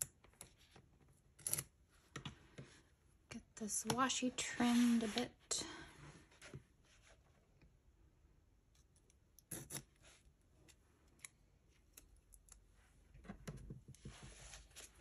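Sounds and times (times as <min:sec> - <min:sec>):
tape being trimmed: 0:09.4 - 0:10.0.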